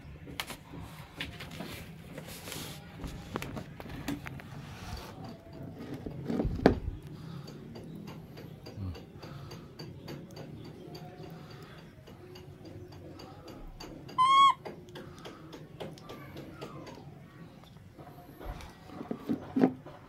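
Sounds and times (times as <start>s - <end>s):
short high squeak: 14.2s - 14.6s.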